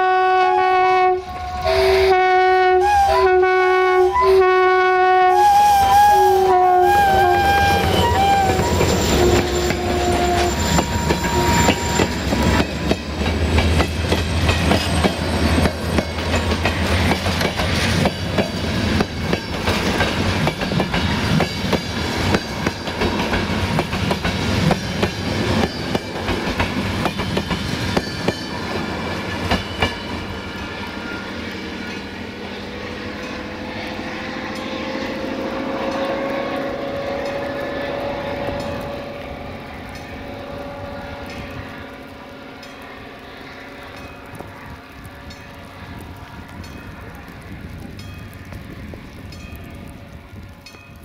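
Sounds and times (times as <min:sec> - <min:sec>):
train rumbling past: 0:00.0 - 0:51.0
wheels clicking over rail joints: 0:07.4 - 0:30.3.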